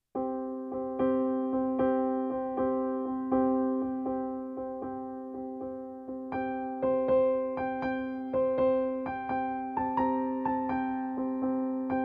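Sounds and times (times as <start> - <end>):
electric piano keyboard tune: 0.1 - 12.0.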